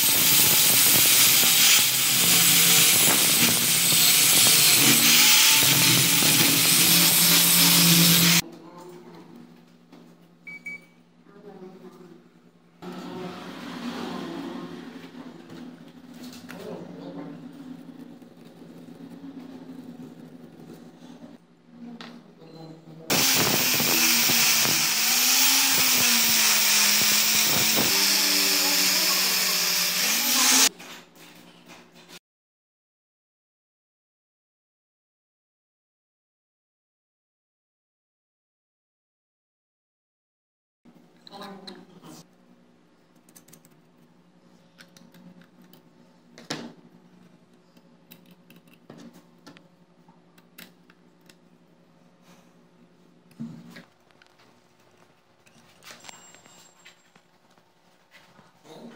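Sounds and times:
sanding disc grinding metal: 0.0s - 8.4s, 23.1s - 30.7s
screwdriver turning screws: 23.1s - 30.7s.

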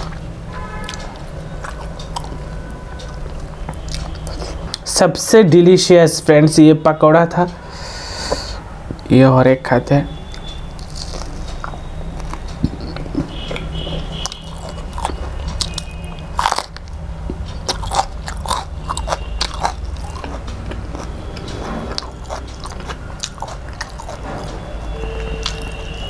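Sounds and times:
wet mouth clicks: 10.8s - 24.2s
fritter crunching: 10.8s - 24.4s.

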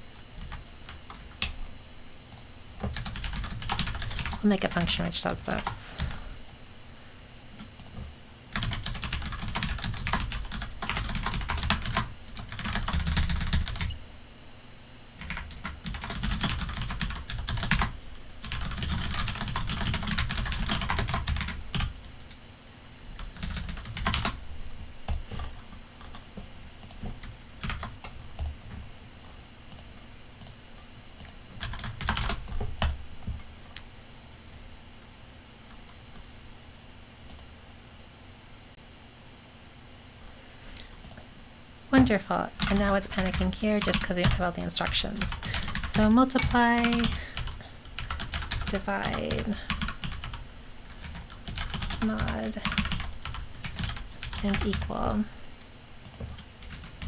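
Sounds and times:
keyboard typing: 2.3s - 4.5s, 7.6s - 14.0s, 15.2s - 22.3s, 23.2s - 24.4s, 26.8s - 28.6s, 31.2s - 33.0s, 45.2s - 55.0s, 56.0s - 57.0s.

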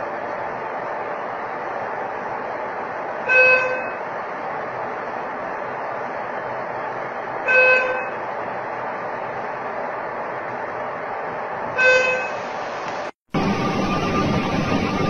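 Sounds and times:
buzzer-like electronic tone: 3.3s - 4.0s, 7.5s - 8.2s, 11.8s - 12.4s.

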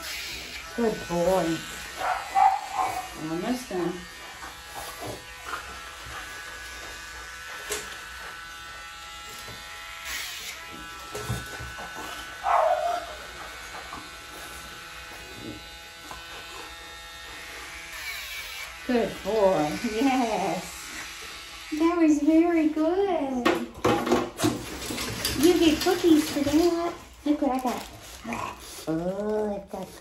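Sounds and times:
electric nail grinder whining: 0.0s - 22.9s.

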